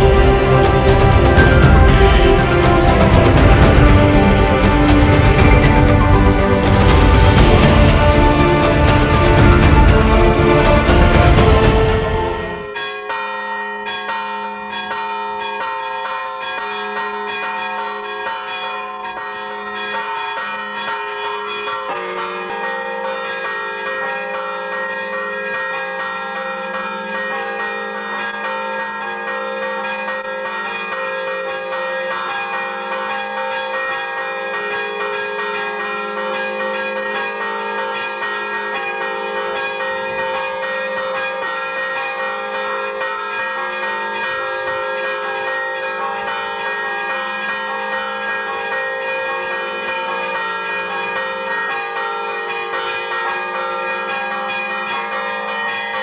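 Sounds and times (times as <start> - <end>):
church bells ringing: 0.0 - 56.0.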